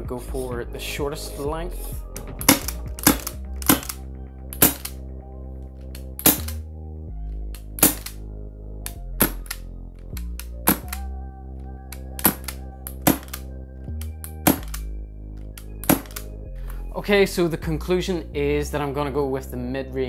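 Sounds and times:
background music: 0:00.0 - 0:20.0
silenced pistol pops: 0:02.2 - 0:05.0, 0:05.9 - 0:06.6, 0:07.5 - 0:08.2, 0:08.8 - 0:09.6, 0:10.2 - 0:11.1, 0:11.9 - 0:14.9, 0:15.6 - 0:16.3.

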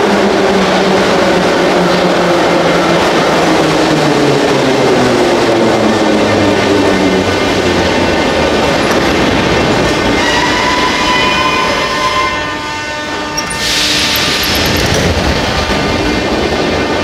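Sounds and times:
train rumbling: 0:00.0 - 0:17.0
brakes squealing: 0:13.3 - 0:15.3.

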